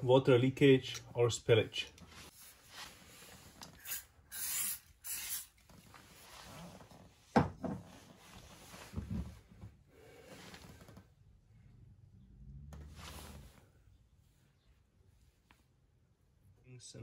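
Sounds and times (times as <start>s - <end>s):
aerosol can spraying: 3.8s - 5.6s.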